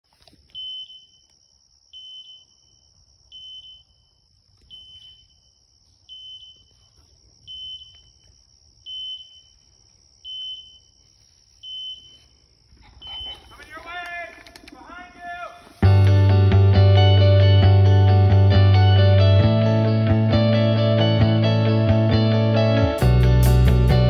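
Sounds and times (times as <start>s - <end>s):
short high beeps: 13.0s - 13.6s.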